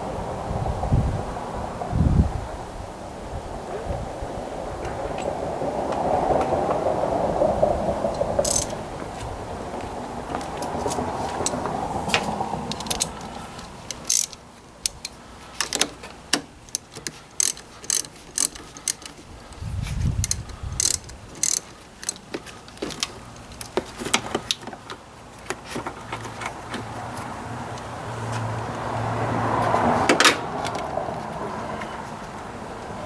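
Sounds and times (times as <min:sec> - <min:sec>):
socket ratchet clicking: 0:08.4 - 0:08.7, 0:12.7 - 0:16.0, 0:16.7 - 0:19.2, 0:20.2 - 0:22.3.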